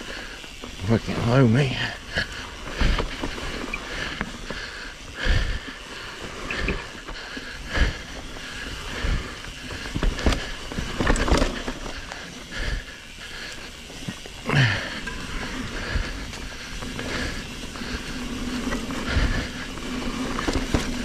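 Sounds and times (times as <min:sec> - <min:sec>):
tyre and trail noise: 0:00.0 - 0:21.0
bike knocks and rattles: 0:09.1 - 0:12.3, 0:14.0 - 0:21.0.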